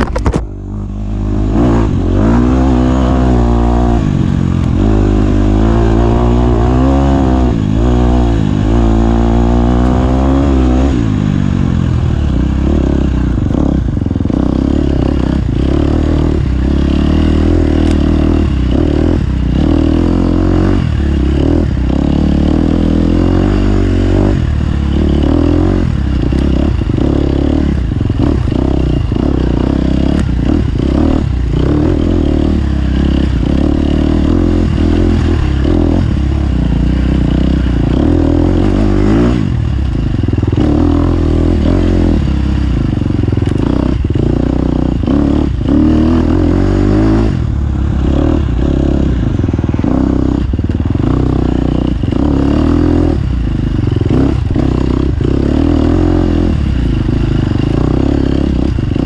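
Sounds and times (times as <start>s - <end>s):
bike knocks and rattles: 0.0s - 0.6s
off-road motorcycle engine revving: 0.0s - 59.0s.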